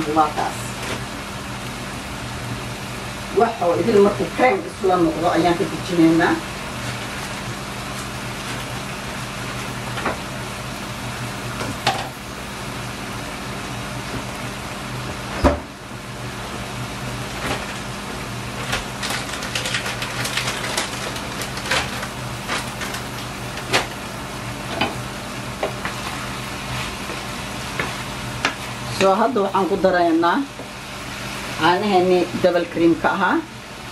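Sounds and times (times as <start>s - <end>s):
chicken and mushrooms sizzling: 20.1s - 33.1s.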